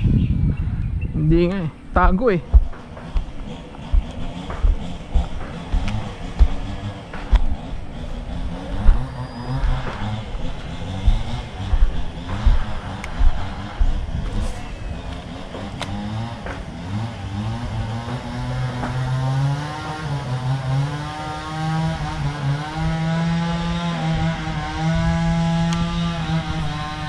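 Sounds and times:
small engine running: 2.4s - 27.0s
sharp clicks: 2.5s - 16.6s.

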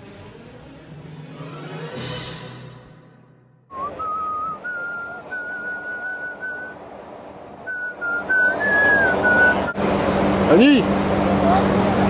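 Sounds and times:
steady background noise: 0.0s - 12.0s
person whistling a slow tune: 3.7s - 6.8s, 7.7s - 9.7s.

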